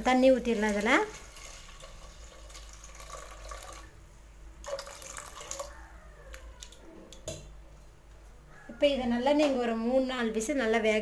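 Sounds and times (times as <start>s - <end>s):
water pouring into pot: 0.1s - 4.0s, 4.6s - 5.7s.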